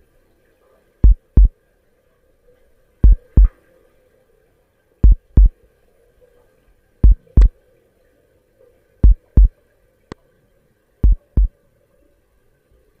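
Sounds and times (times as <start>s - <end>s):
faint steady hum: 0.0s - 13.0s
heartbeat thumps: 1.0s - 1.5s, 3.0s - 3.5s, 5.0s - 5.5s, 7.0s - 7.5s, 9.0s - 9.5s, 11.0s - 11.5s.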